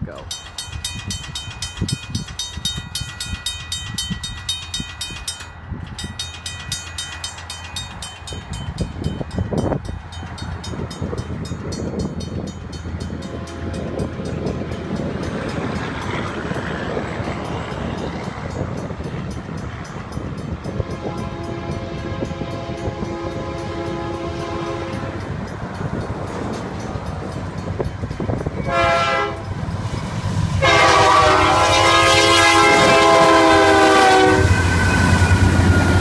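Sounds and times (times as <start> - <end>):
crossing warning bell ringing: 0.0 - 36.0
wind rumble on microphone: 7.8 - 34.6
distant train horn: 13.2 - 14.1, 20.8 - 25.3, 28.6 - 29.6, 30.6 - 36.0.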